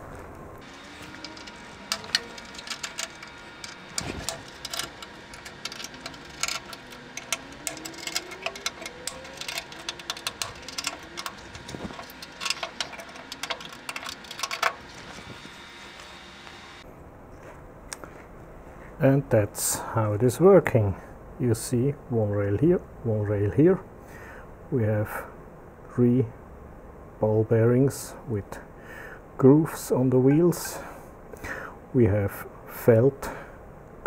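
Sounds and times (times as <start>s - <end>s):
wheels rattling along metal rail: 0.6s - 16.4s
faint rising roller whines: 0.6s - 16.8s.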